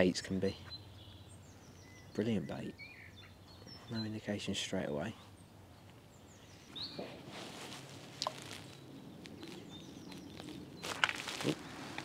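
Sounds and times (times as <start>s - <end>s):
bird chirps: 0.0s - 7.2s, 8.5s - 11.7s
clicks and rustles: 8.1s - 12.0s.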